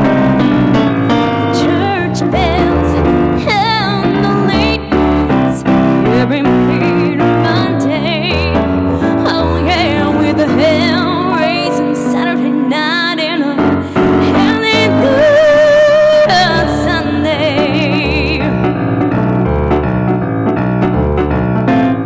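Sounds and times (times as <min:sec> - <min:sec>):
keyboard piano chords: 0:00.0 - 0:22.0
woman singing with vibrato: 0:01.4 - 0:18.6.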